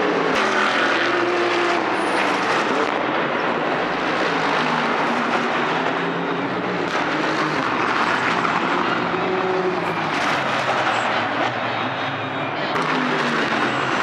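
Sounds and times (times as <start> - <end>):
race car engines: 0.0 - 14.0.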